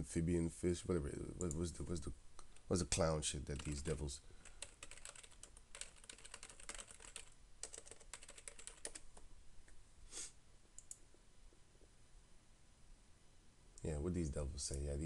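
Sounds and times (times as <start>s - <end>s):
computer keyboard typing: 3.6s - 9.2s.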